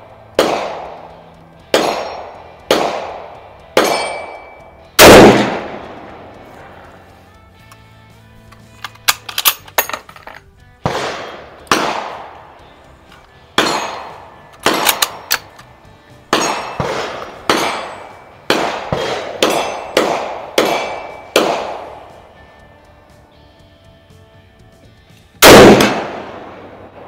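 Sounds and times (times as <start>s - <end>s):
echoing gunshots: 0.3s - 1.1s, 1.7s - 4.4s, 5.0s - 6.9s, 10.8s - 12.5s, 13.6s - 15.5s, 16.3s - 22.2s, 25.4s - 27.0s.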